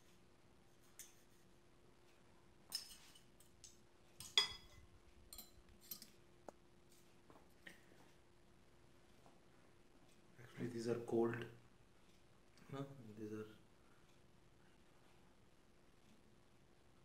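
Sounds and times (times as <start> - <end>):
metal spoons clinking: 2.7 - 3.5, 4.2 - 6.2.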